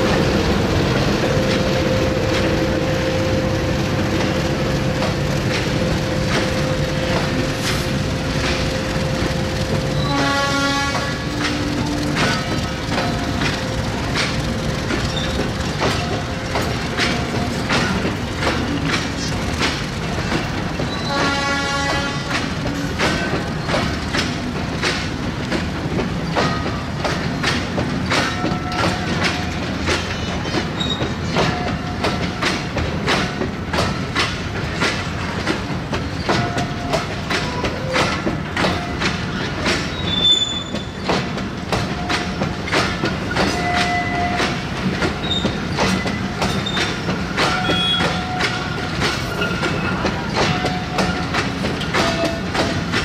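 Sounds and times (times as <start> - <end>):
train wheels clicking over rail joints: 0.0 - 53.0
high wheel squeals: 38.8 - 41.1, 45.2 - 52.5.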